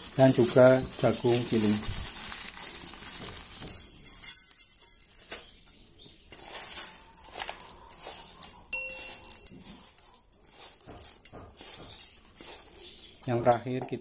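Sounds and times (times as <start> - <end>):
grain feed stirred by hand: 0.0 - 5.2, 6.3 - 13.4
corn rattling into a steel bowl: 0.0 - 5.5, 6.2 - 12.9
electronic chime: 8.7 - 9.6.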